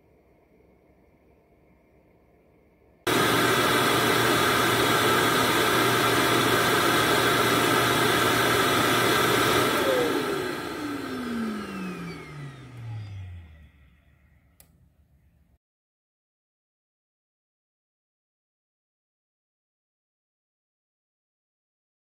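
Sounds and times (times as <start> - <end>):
suction motor rushing air: 3.1 - 13.8
motor spinning down whine: 3.1 - 14.6.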